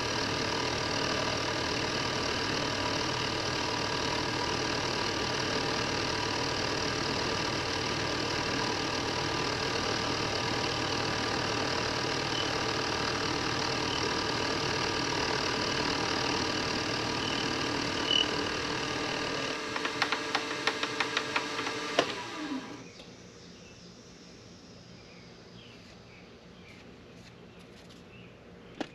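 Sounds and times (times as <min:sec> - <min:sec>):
milling machine running: 0:00.0 - 0:22.9
spindle winding down: 0:00.0 - 0:23.0.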